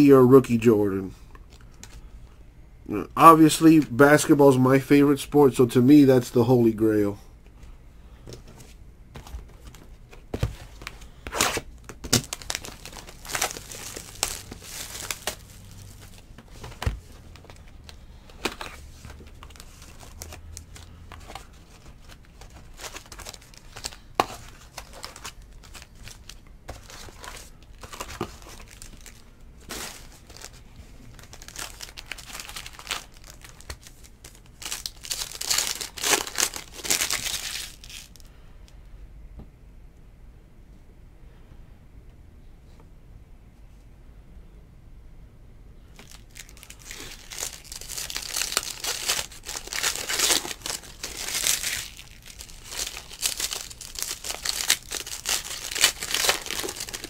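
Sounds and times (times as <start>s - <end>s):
wrappers tearing and crinkling: 10.8s - 38.3s, 46.0s - 57.0s.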